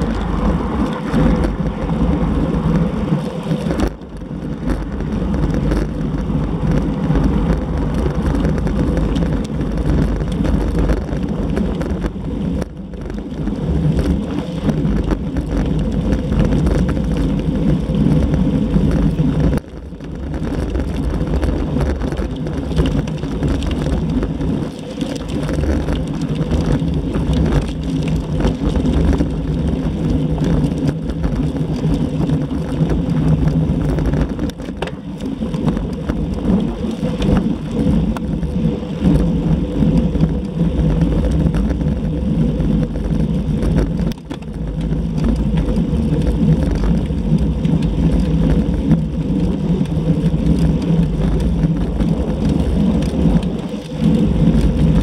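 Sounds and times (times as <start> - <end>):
wind rumbling over microphone: 0.0 - 55.0.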